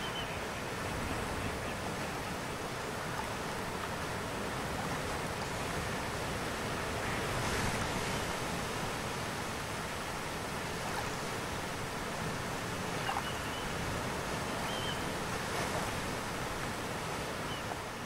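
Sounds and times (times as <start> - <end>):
sea birds calling: 0.0 - 2.2, 12.8 - 15.3, 17.2 - 18.0
surf washing up a beach: 0.0 - 18.0.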